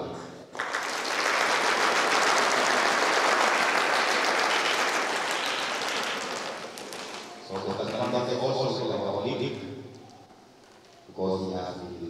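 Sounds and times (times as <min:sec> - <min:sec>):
audience applauding: 0:00.5 - 0:08.6.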